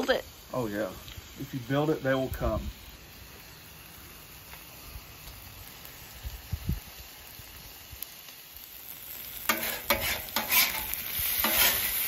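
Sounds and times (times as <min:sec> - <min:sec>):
food sizzling on griddle: 0:00.0 - 0:12.0
metal spatula scraping griddle: 0:09.4 - 0:12.0.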